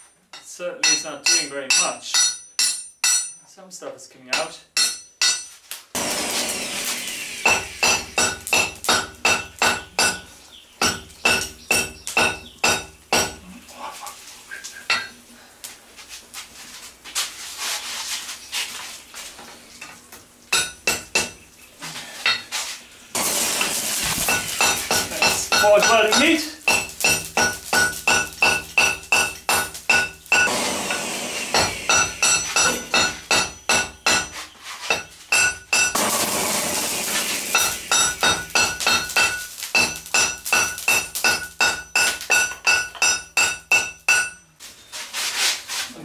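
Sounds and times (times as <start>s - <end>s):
hammer striking metal on anvil: 0.3s - 3.4s, 4.3s - 5.6s, 7.4s - 13.4s, 14.9s - 15.1s, 20.5s - 21.4s, 24.2s - 36.1s, 37.5s - 44.5s
loud hiss: 6.0s - 9.8s, 23.1s - 28.9s, 30.3s - 32.8s, 36.0s - 41.4s.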